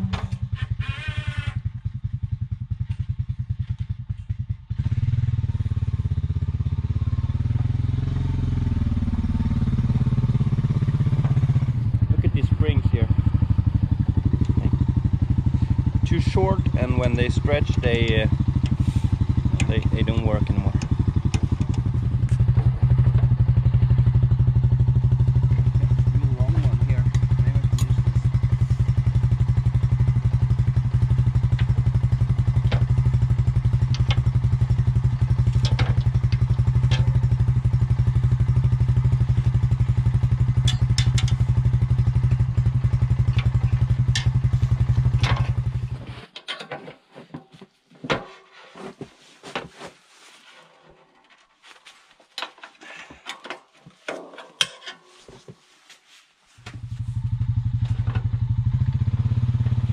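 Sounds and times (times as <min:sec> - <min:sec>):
metal clanks and knocks: 0:00.0 - 0:00.6, 0:33.8 - 0:34.3, 0:35.4 - 0:37.4, 0:40.6 - 0:41.5, 0:43.3 - 0:48.6, 0:52.3 - 0:55.5
atv engine idling: 0:00.0 - 0:46.0, 0:56.8 - 0:59.9.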